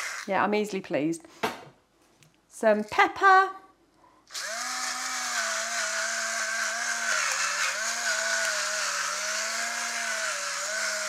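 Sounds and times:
electric pepper grinder whining: 0:00.0 - 0:00.3, 0:04.3 - 0:11.0.

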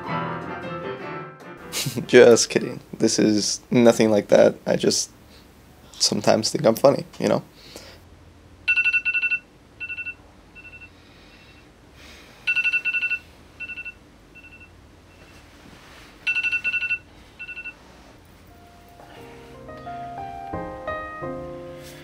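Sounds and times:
piano notes: 0:00.0 - 0:02.5, 0:18.2 - 0:22.0
electronic alarm beeping: 0:08.7 - 0:11.0, 0:12.5 - 0:15.4, 0:16.2 - 0:17.8.

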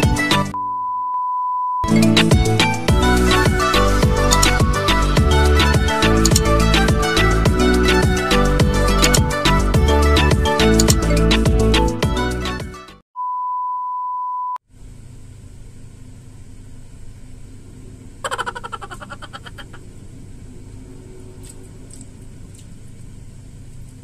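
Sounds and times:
high pure beep tone: 0:00.5 - 0:01.9, 0:13.2 - 0:14.6
low room hum: 0:14.7 - 0:24.0.

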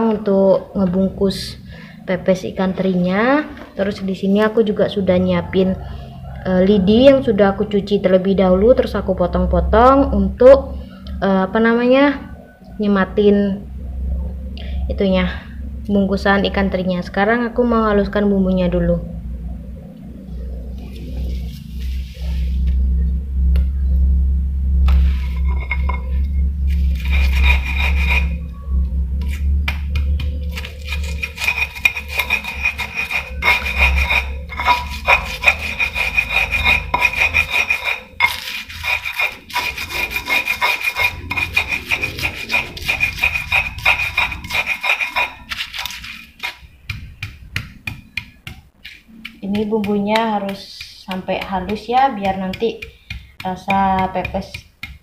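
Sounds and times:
low rumble: 0:00.6 - 0:48.0
stone pestle grinding in mortar: 0:24.9 - 0:28.4, 0:29.2 - 0:55.0.

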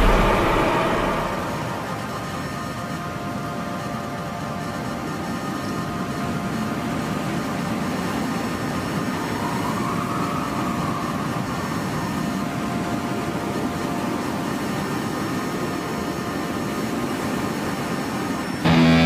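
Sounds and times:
dungeon synth music: 0:18.6 - 0:19.0.

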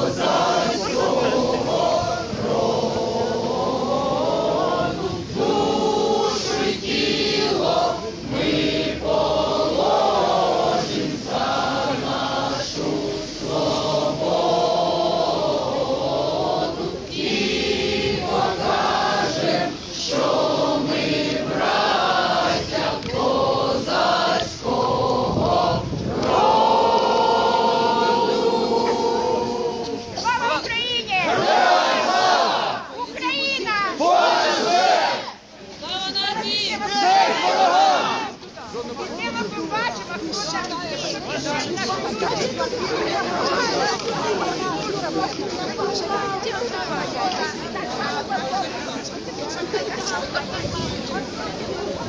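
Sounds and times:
crowd singing in unison: 0:00.0 - 0:33.0, 0:33.9 - 0:35.5, 0:36.2 - 0:38.5, 0:40.3 - 0:52.0.

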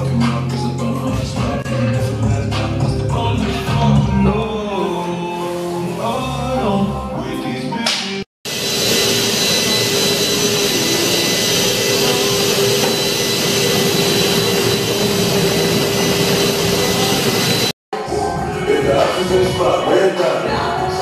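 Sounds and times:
hot tub motor hum: 0:08.5 - 0:17.7.

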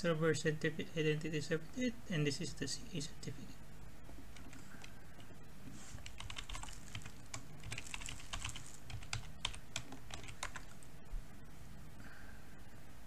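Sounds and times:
keyboard typing: 0:04.3 - 0:05.3, 0:06.0 - 0:10.9.

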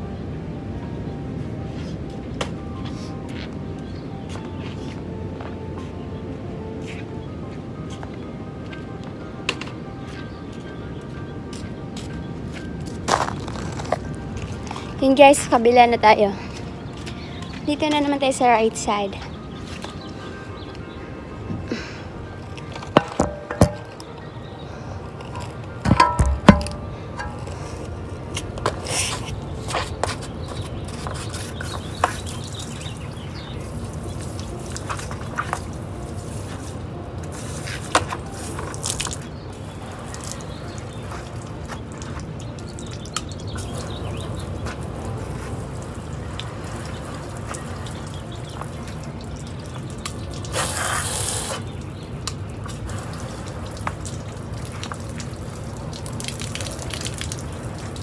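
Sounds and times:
hose water spraying and splashing: 0:28.6 - 0:58.0.

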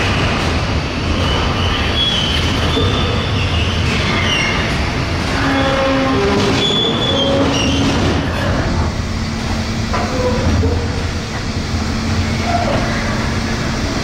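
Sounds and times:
freight wagons rumbling on rails: 0:00.0 - 0:14.0
wheels squealing: 0:01.2 - 0:08.6.

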